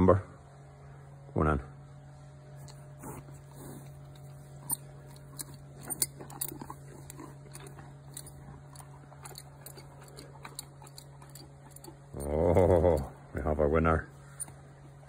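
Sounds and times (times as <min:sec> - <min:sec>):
horse chewing crunchy food: 0:02.6 - 0:13.3.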